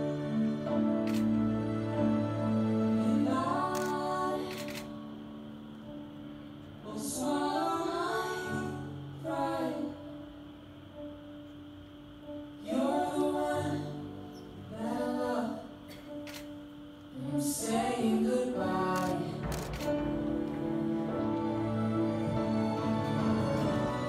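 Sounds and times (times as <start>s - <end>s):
low held accompaniment notes: 17.8s - 24.0s.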